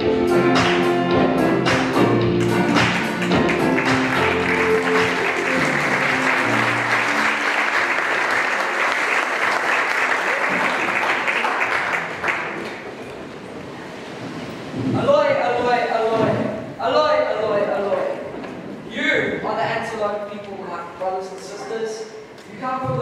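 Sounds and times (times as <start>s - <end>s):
music playing: 0.0s - 8.6s
audience applause: 2.4s - 13.2s.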